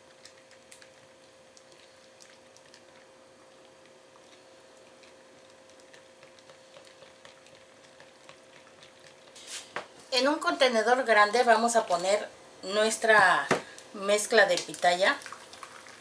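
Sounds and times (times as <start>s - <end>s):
liquid stirring: 0.0s - 9.9s.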